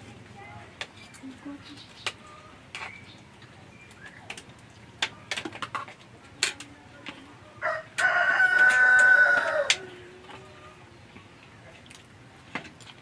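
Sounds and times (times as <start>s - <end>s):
spoons clicking on plates: 4.3s - 7.2s, 8.0s - 10.4s
rooster crowing: 7.6s - 10.0s.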